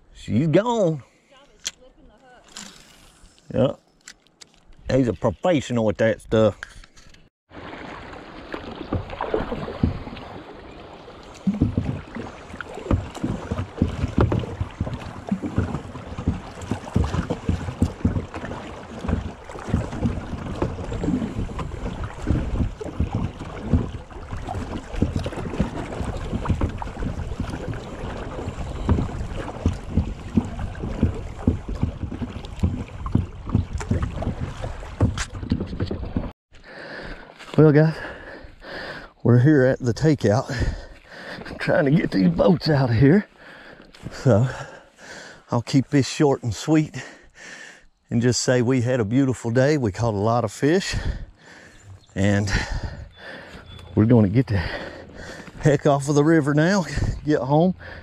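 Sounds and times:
water sloshing: 6.6s - 58.0s
boat knocks and thumps: 7.5s - 36.3s, 49.4s - 58.0s
wind rumbling on microphone: 8.7s - 36.3s.

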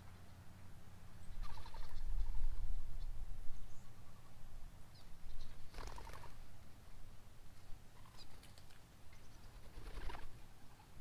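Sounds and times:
faint high bird chirps: 1.2s - 6.2s
birds fluttering in water: 5.7s - 6.4s.

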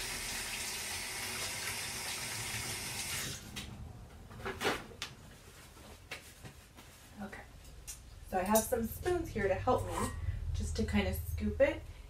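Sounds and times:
faucet running: 0.0s - 3.4s.

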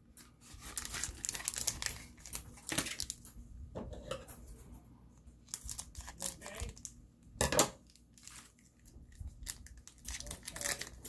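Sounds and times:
wrapper crinkling: 0.2s - 3.3s, 5.4s - 7.0s, 7.8s - 11.0s
cards rustling: 0.4s - 3.2s, 7.9s - 11.0s.

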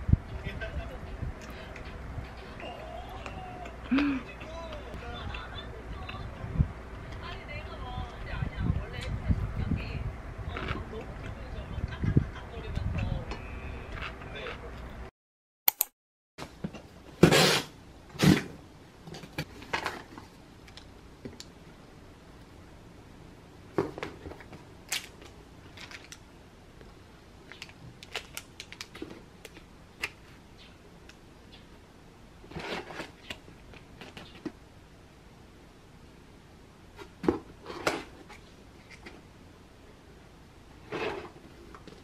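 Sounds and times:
plastic crinkling: 27.4s - 30.2s
cardboard and packages clicking: 27.5s - 30.2s
packing tape ripping: 27.6s - 30.2s.

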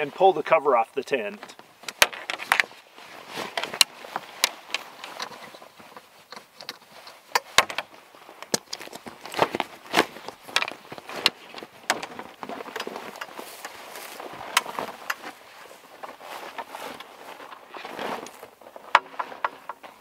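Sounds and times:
straps and fabric rustling: 1.2s - 20.0s
buckles clicking open: 3.5s - 9.6s.

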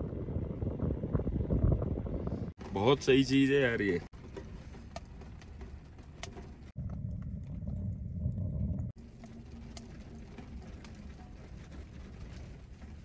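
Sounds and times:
strong wind buffeting tent: 0.0s - 5.4s.

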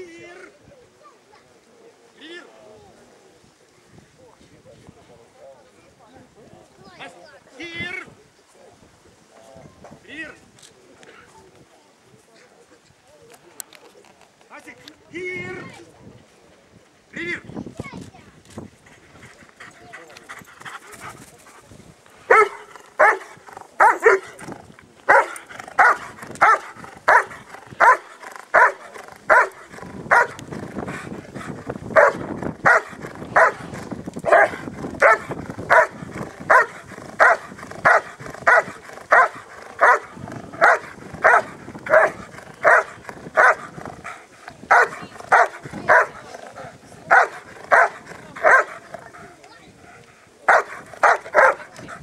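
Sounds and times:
dog barking rhythmically: 22.3s - 24.3s, 25.1s - 30.5s, 31.9s - 33.6s, 34.2s - 43.8s, 44.7s - 46.2s, 47.1s - 48.9s, 50.5s - 51.6s.

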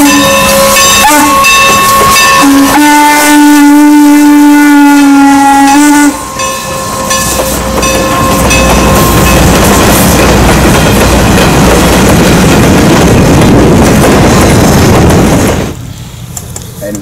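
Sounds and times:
steam locomotive whistle: 0.0s - 9.2s
train wheels rumbling on rail: 0.0s - 17.0s.

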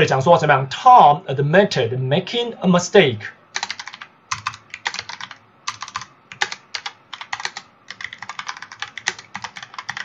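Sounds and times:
computer keyboard typing: 3.6s - 10.0s.

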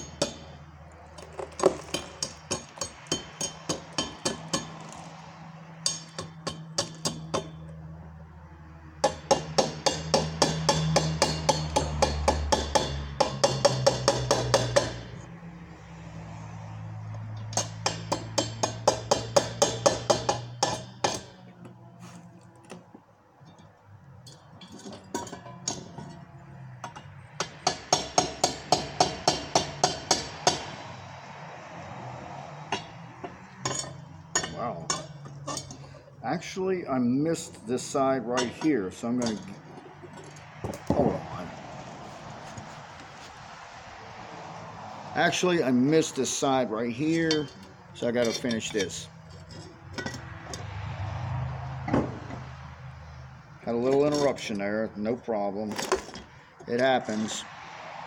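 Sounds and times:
chipping hammer tapping metal: 1.2s - 5.0s, 5.8s - 7.6s, 9.0s - 15.1s, 17.5s - 21.4s, 26.8s - 30.8s.

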